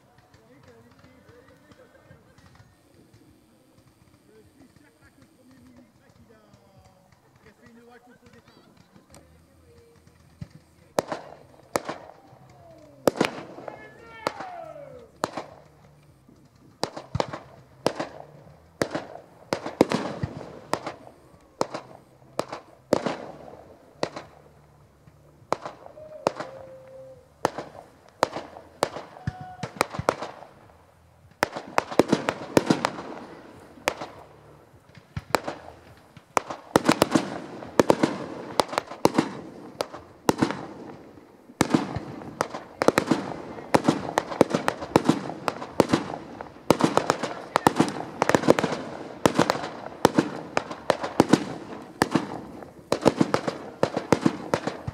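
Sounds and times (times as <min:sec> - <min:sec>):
fireworks bursting with bangs: 0:00.0 - 0:54.9.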